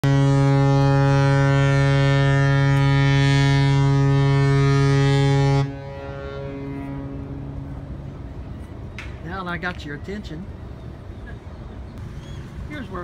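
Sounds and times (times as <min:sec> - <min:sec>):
ship's horn blast: 0:00.0 - 0:08.8
harbour background: 0:00.0 - 0:13.0.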